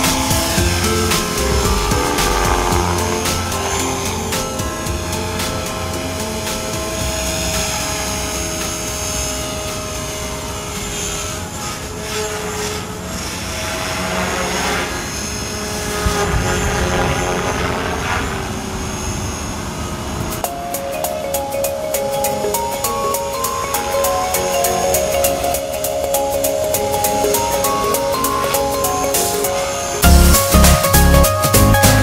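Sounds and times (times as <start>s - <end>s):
rc helicopter rotor and motor whine: 0.0s - 20.4s.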